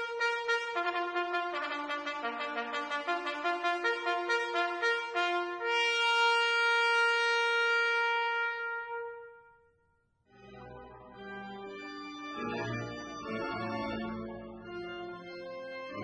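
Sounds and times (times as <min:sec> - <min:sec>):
solo trumpet playing: 0:00.0 - 0:09.7.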